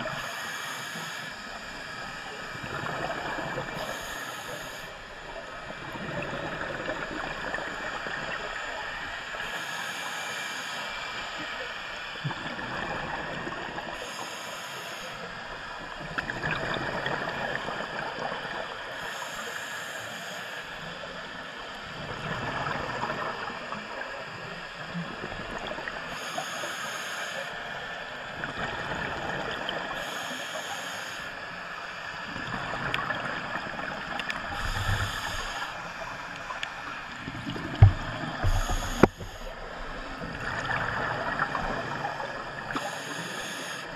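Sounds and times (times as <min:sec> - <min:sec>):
regulator hissing inhale: 0:00.1 - 0:01.8, 0:03.8 - 0:05.1, 0:09.4 - 0:11.2, 0:14.0 - 0:15.3, 0:18.9 - 0:21.1, 0:26.1 - 0:28.1, 0:29.9 - 0:31.5, 0:34.3 - 0:37.1, 0:38.3 - 0:39.8, 0:42.6 - 0:43.9
gurgling exhaled bubbles: 0:16.0 - 0:18.6, 0:32.3 - 0:42.9.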